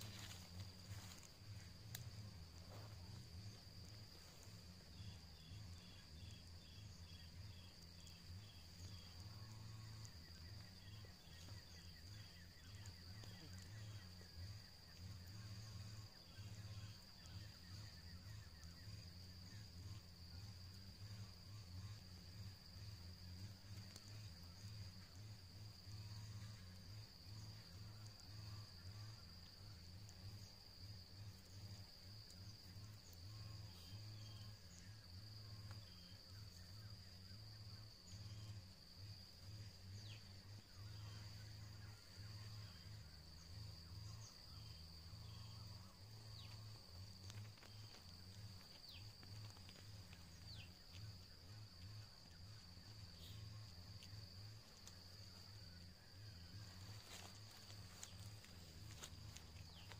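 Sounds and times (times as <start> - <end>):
faint high ticks: 0.0 - 2.4, 46.4 - 53.4
high-pitched insect drone: 0.0 - 59.9.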